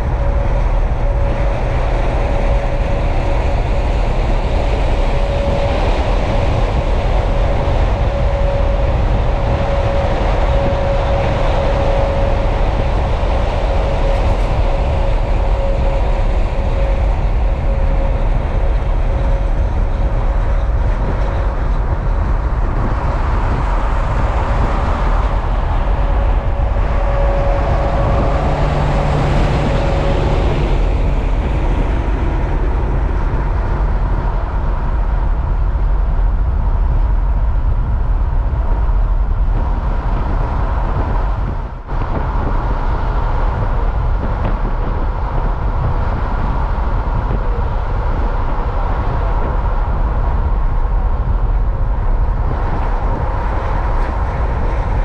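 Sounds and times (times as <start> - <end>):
heavy trucks passing: 0.0 - 36.5.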